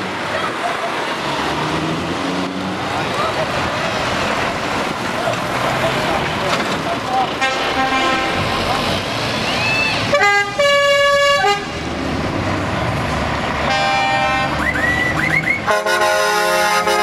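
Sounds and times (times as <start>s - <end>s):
diesel engines pulling away: 0.0s - 17.0s
truck air horn blasts: 7.4s - 8.5s, 10.1s - 11.8s, 13.6s - 14.9s, 15.6s - 17.0s.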